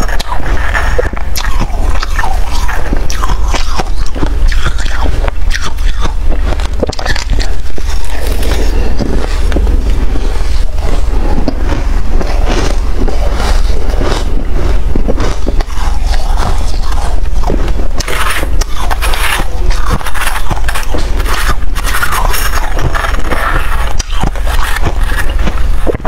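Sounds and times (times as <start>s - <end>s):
frost crunching as chewed: 0.0s - 26.0s
steady low hum: 0.0s - 26.0s
metal spoon scraping frost: 15.2s - 25.4s.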